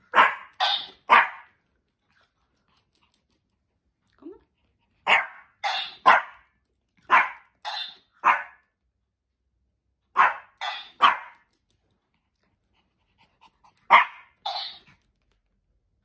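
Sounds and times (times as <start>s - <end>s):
small dog barking sharply: 0.1s - 1.5s, 5.1s - 6.4s, 7.1s - 7.5s, 8.2s - 8.6s, 10.2s - 11.4s, 13.9s - 14.3s.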